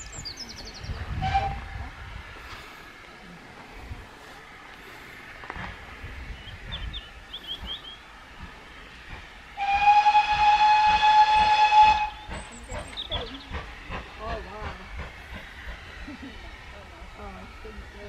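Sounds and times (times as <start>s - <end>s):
steam locomotive whistle blast: 1.2s - 1.7s, 9.6s - 12.3s.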